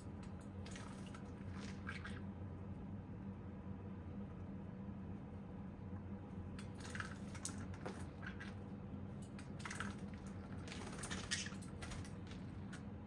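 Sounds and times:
wing flutter: 9.4s - 12.8s.

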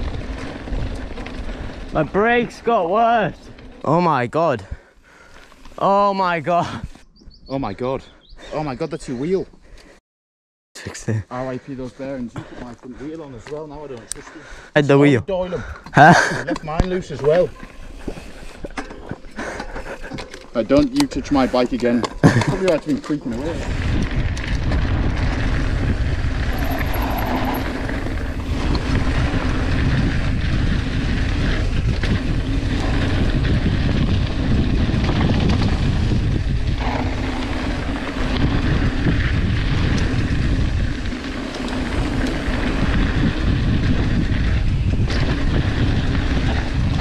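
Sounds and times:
wind rushing over microphone: 0.0s - 3.6s, 23.4s - 47.0s
tyres rolling on gravel: 0.0s - 4.3s, 16.4s - 47.0s.

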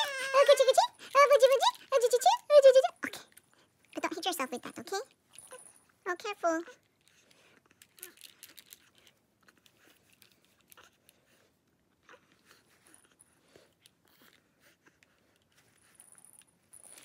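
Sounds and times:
plastic rattle toy clicks and rustles: 0.0s - 11.2s, 15.0s - 17.0s.

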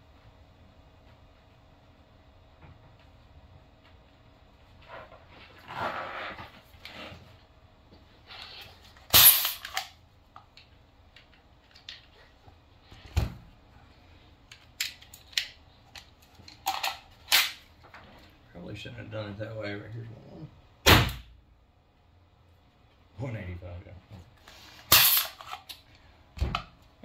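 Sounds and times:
launcher firing sharp pop: 20.9s - 21.3s.

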